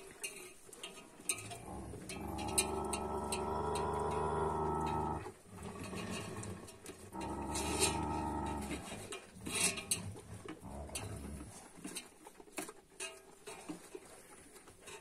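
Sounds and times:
dog growling: 0:01.4 - 0:11.8.

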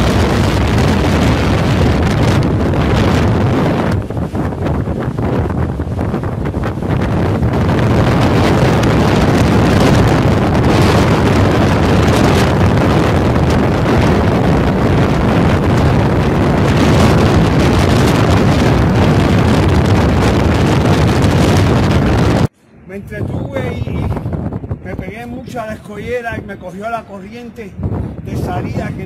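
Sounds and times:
breaking surf: 0:00.0 - 0:22.5
wind buffeting microphone: 0:00.0 - 0:29.0.

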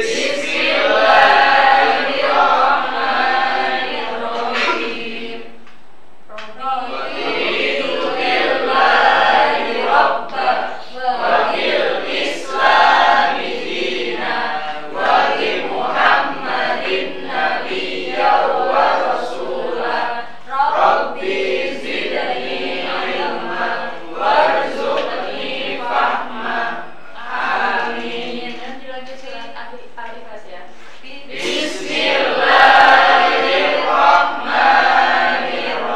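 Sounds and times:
students chanting prayer in unison: 0:00.0 - 0:05.6, 0:06.4 - 0:29.0, 0:31.2 - 0:35.9.

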